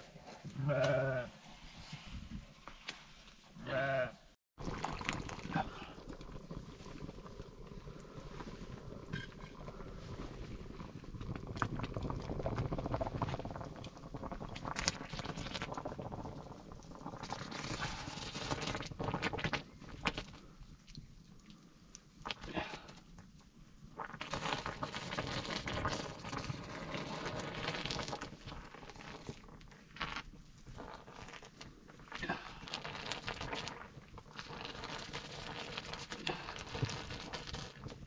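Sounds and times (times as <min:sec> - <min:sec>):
stick stirring porridge in a pot: 0:24.0 - 0:38.0.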